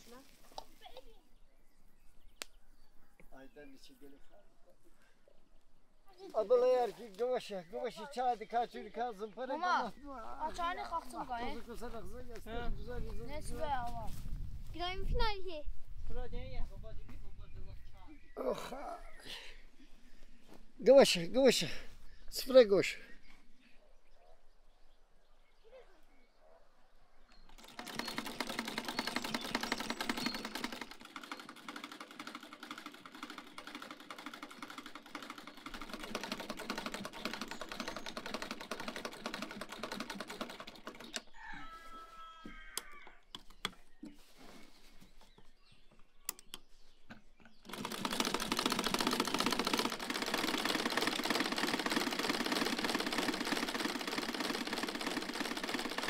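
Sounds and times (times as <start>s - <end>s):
sewing machine clattering: 27.5s - 41.3s, 47.6s - 56.0s.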